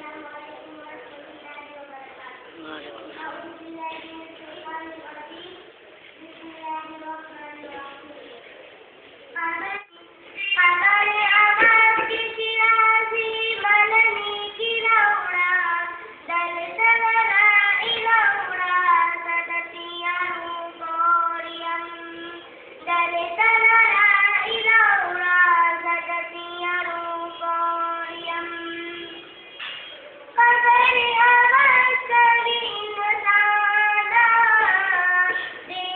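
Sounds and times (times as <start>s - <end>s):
girl singing: 0.0s - 8.3s, 9.4s - 29.3s, 30.3s - 35.9s.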